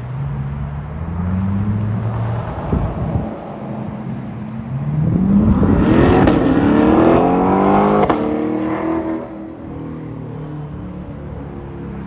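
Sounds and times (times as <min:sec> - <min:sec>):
car engine accelerating hard: 0:01.0 - 0:09.7.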